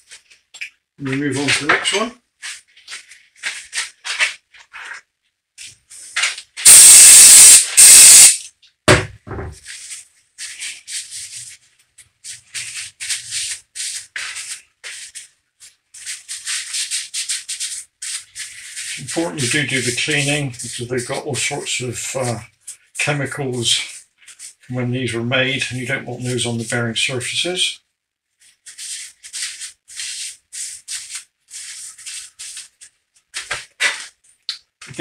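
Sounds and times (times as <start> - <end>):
aerosol spray hissing: 6.6 - 8.4
cloth rubbing on metal: 9.6 - 22.8, 28.3 - 34.3.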